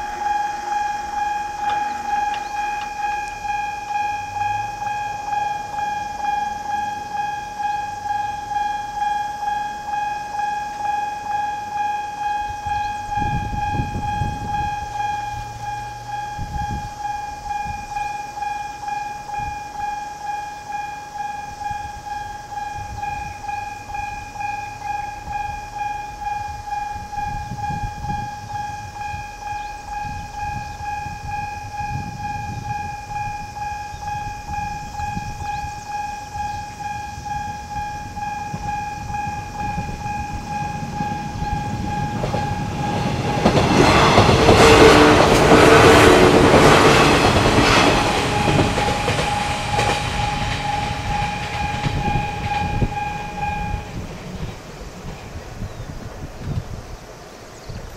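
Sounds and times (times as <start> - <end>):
level crossing bell dinging: 0.0 - 54.0
electric train passing: 0.0 - 57.9.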